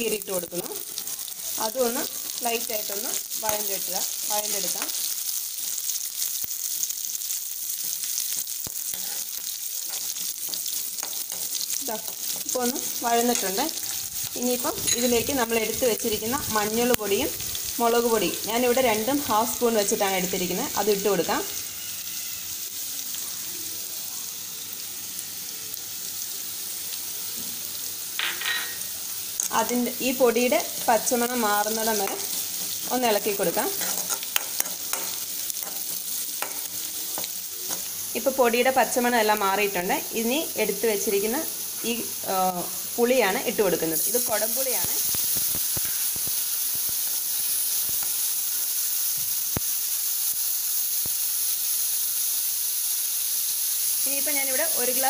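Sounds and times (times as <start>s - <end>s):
onions sizzling in oil: 0.0s - 55.0s
metal spoon clicking on pan: 33.8s - 35.8s.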